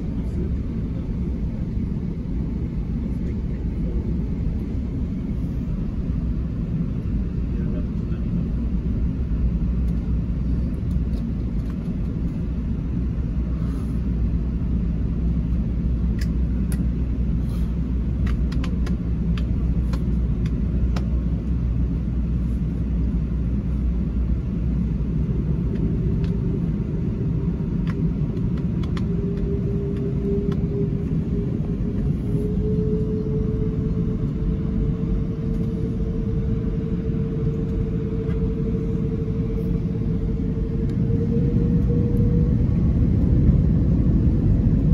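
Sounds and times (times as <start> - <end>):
aircraft cabin engine rumble: 0.0 - 44.9
rising engine tone: 24.8 - 44.9.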